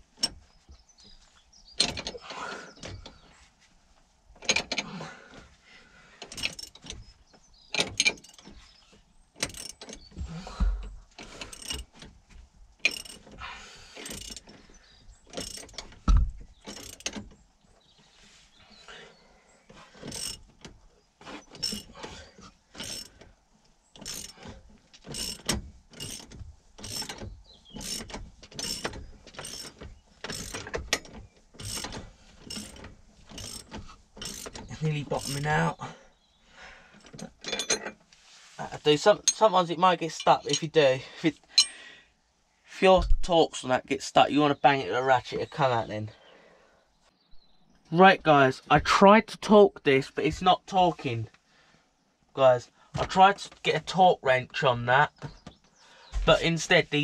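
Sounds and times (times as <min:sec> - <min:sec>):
hand ratchet clicking: 0:06.2 - 0:06.9, 0:09.4 - 0:10.1, 0:11.2 - 0:12.0, 0:12.8 - 0:13.3, 0:14.0 - 0:14.5, 0:15.3 - 0:15.9, 0:16.6 - 0:17.2, 0:20.0 - 0:20.5, 0:21.6 - 0:21.9, 0:22.8 - 0:23.2, 0:24.0 - 0:35.5.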